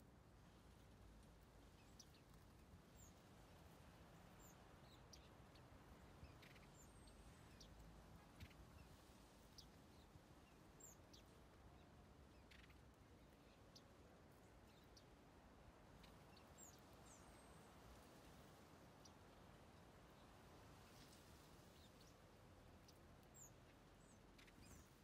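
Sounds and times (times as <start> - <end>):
low steady hiss: 0.0 - 25.0
finches chirping: 6.2 - 7.8.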